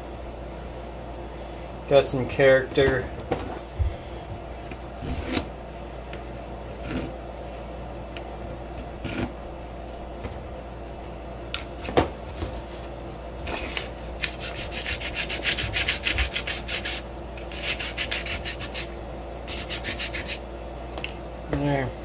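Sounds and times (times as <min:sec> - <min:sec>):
sandpaper rubbing: 0:13.6 - 0:18.9, 0:19.5 - 0:20.4.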